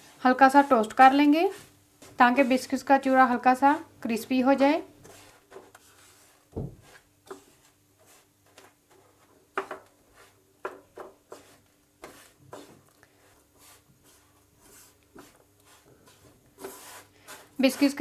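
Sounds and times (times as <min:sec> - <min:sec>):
spatula scraping a frying pan: 0:00.0 - 0:02.8, 0:05.0 - 0:09.3, 0:10.0 - 0:18.0.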